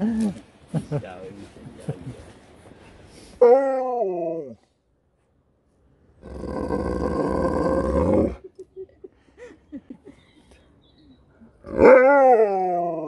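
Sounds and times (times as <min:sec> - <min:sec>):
dog grumbling roar: 0:06.2 - 0:08.4, 0:11.6 - 0:13.0
dog howling: 0:11.7 - 0:13.0.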